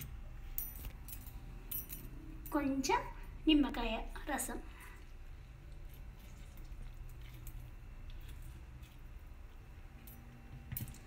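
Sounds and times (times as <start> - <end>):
lemon squishing by hand: 4.8 - 9.9
juice dripping into steel bowl: 4.8 - 11.0.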